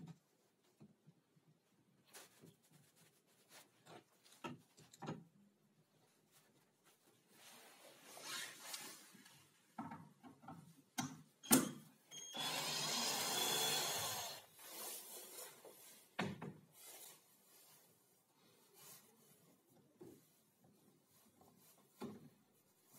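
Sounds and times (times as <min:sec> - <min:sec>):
cordless drill running: 0:12.3 - 0:14.4.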